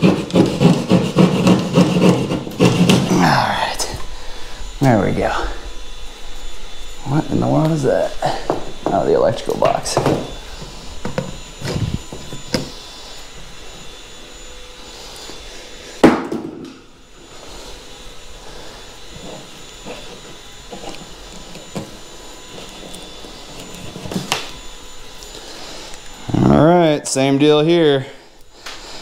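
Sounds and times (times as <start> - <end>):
scraping on drywall: 0.0 - 3.1
faint steady hum: 0.0 - 29.0.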